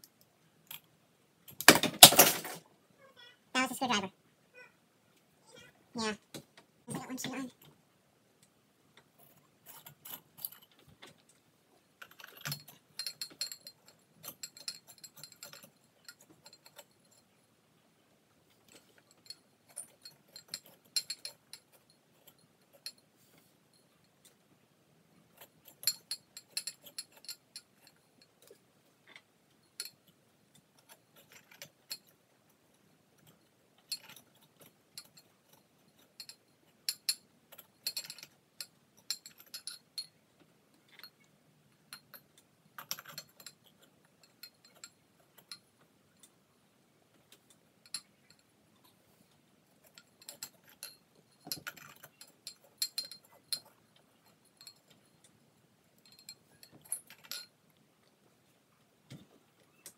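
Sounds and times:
glass and metal clinking: 11.9 - 17.5, 18.7 - 23.1, 25.3 - 28.6, 33.2 - 40.2, 40.9 - 46.3, 47.8 - 48.5, 49.8 - 57.6.

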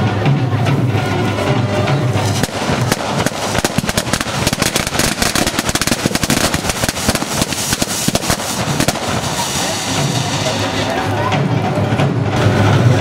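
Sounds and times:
firework hissing and crackling: 2.0 - 11.5.

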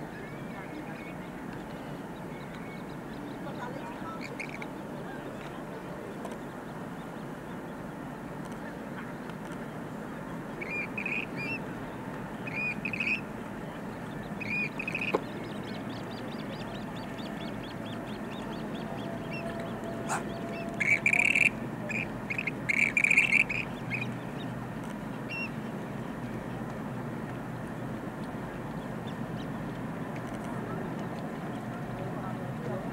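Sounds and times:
open-air background hiss: 0.0 - 32.9
birds squeaky calls: 2.3 - 4.7, 10.6 - 11.6, 12.5 - 13.2, 14.2 - 24.5
harsh rasping bird calls: 3.5 - 4.7, 10.6 - 11.6, 12.5 - 13.2, 14.4 - 24.2.

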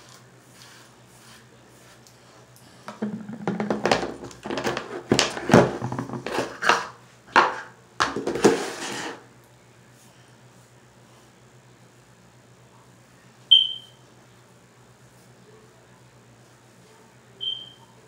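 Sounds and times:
plastic jar knocking and scraping: 2.9 - 9.2.

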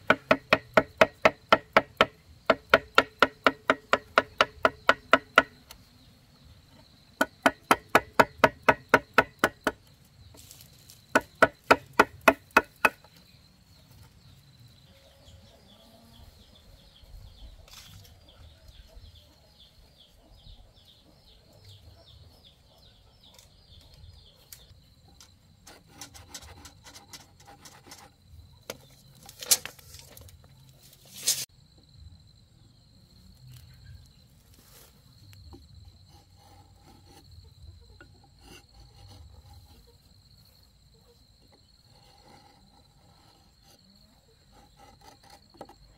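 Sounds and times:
sharp knocks: 0.0 - 5.6, 7.2 - 9.8, 11.1 - 13.1
rapid strikes on wood: 0.0 - 5.8, 7.2 - 9.9, 11.1 - 13.2
high insect buzz: 0.0 - 17.1.

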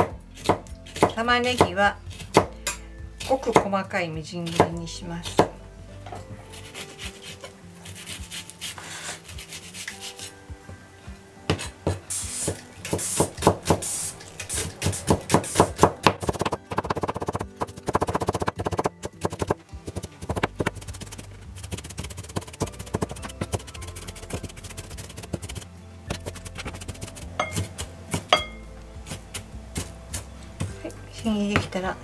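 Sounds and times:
soft background music: 0.0 - 32.0.

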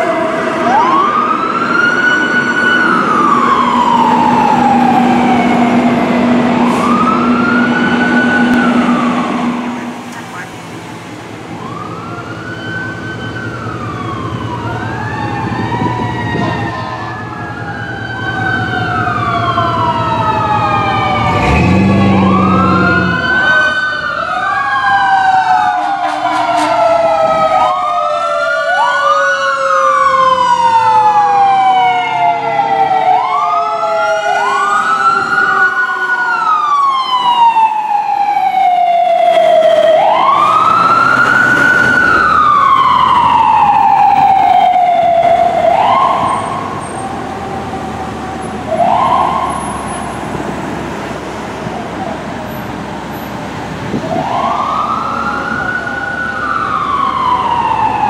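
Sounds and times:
fire engine siren wailing: 0.0 - 58.0
low air horn blast: 25.7 - 27.2.

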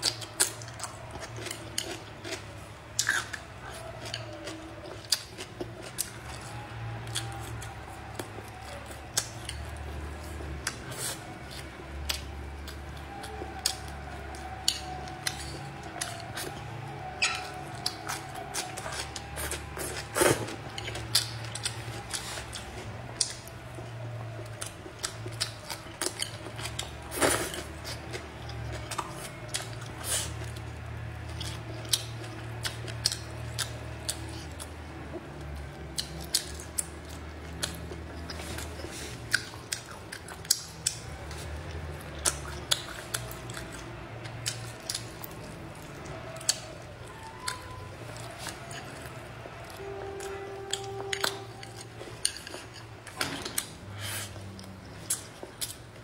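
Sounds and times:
chopsticks clicking on bowls: 42.2 - 53.7.

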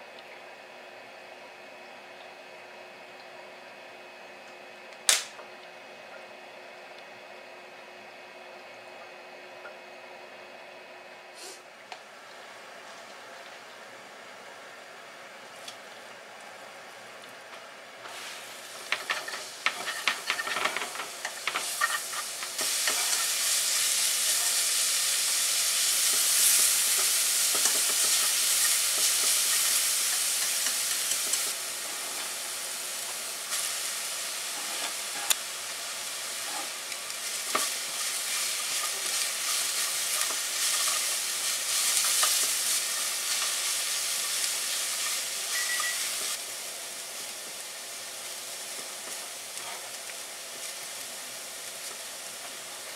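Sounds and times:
food sizzling in oil: 17.8 - 52.9.

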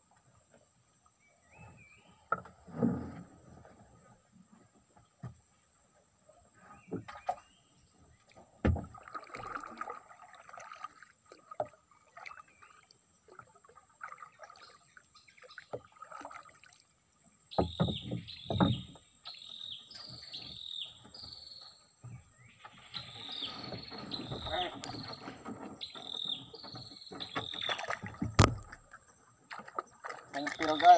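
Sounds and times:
light water sounds: 0.0 - 30.9
knocks against wooden hull: 8.4 - 9.5, 17.5 - 19.1, 22.0 - 30.9
wooden paddle strokes: 22.0 - 28.8
bird calling falling notes: 23.2 - 28.2.

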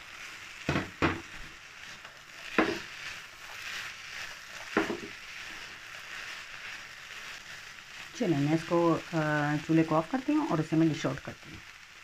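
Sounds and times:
spatula stirring: 0.0 - 9.7
food sizzling in a pan: 0.0 - 12.0
spatula knocking against pan: 0.7 - 1.3, 2.5 - 2.9, 4.7 - 5.2.

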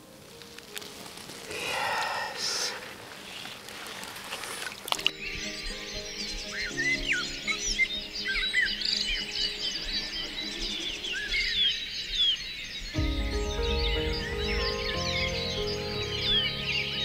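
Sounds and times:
birds chirping and singing: 1.6 - 17.0
soft background music chords: 5.0 - 10.7, 13.0 - 17.0.

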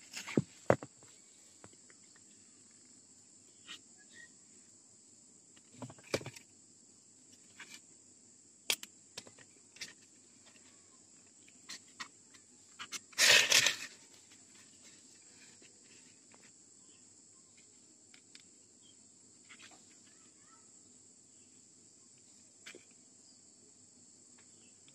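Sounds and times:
high insect trill: 0.0 - 24.9.

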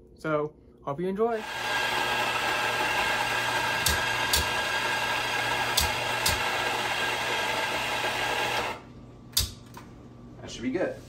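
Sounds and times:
coffee grinder grinding: 1.4 - 8.8
sharp clicks: 9.3 - 9.9.

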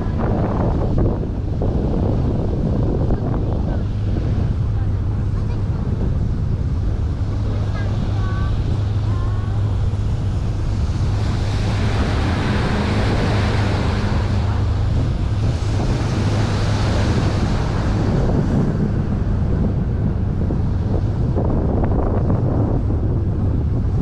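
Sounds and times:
boat engine humming: 0.0 - 24.0
water rushing along hull: 0.0 - 24.0
wind buffeting microphone: 0.0 - 24.0.

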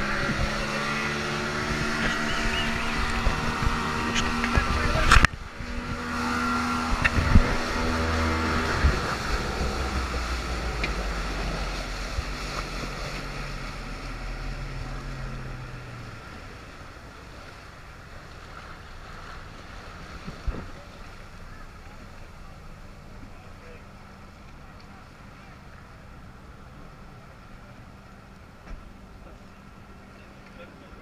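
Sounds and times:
wind on microphone: 0.0 - 13.4
boat motor humming: 0.0 - 31.0
water rushing along hull: 0.0 - 31.0.

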